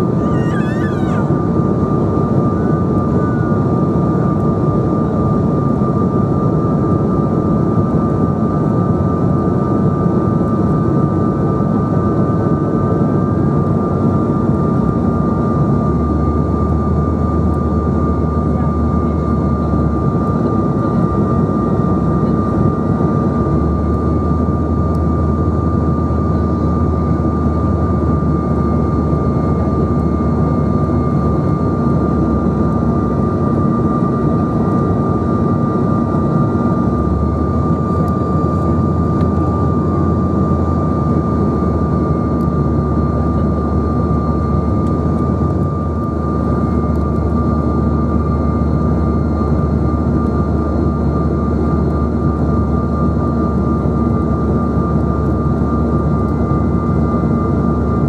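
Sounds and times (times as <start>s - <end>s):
jet cabin airflow and engines: 0.0s - 58.0s.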